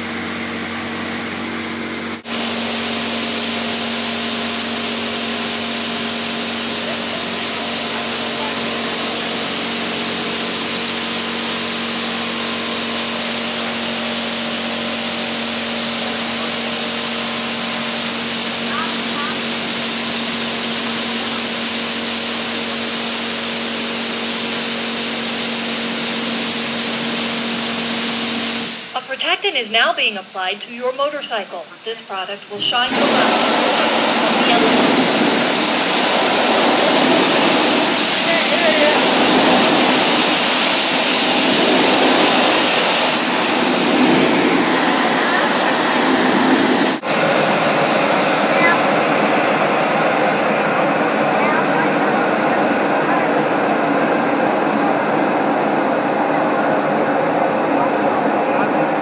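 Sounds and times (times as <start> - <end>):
water jets spraying on motorcycle: 0.0 - 29.1, 32.8 - 48.8
steady mechanical hum: 0.0 - 59.0.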